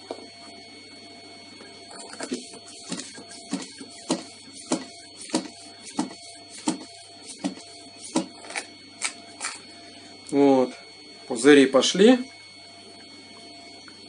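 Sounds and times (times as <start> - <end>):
hand vacuum pump strokes: 2.0 - 9.6.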